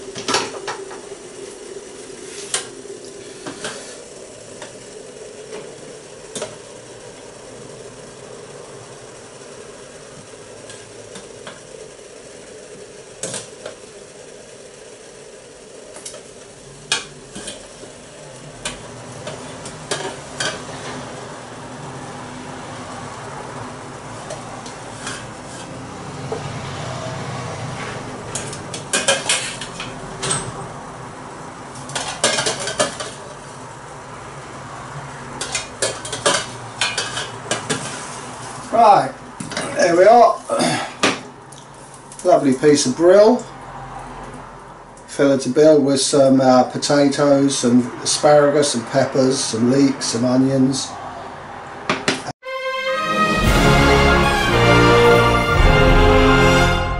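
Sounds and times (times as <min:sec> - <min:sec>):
hiss of steaming and frying: 0:00.0 - 0:44.2.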